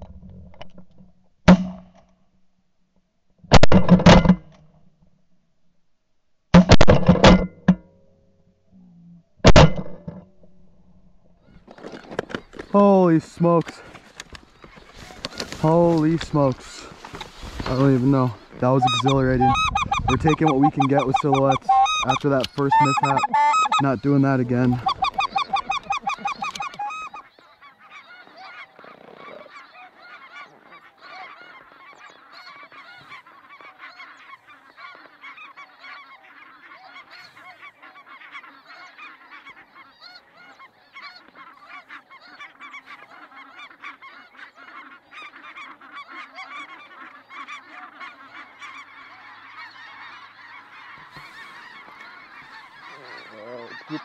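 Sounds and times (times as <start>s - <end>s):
snow geese calling: 11.5s - 54.0s.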